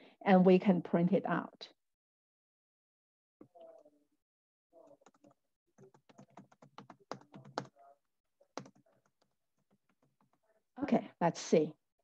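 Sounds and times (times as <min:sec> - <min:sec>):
computer keyboard typing: 0:05.0 - 0:07.8, 0:08.6 - 0:10.4.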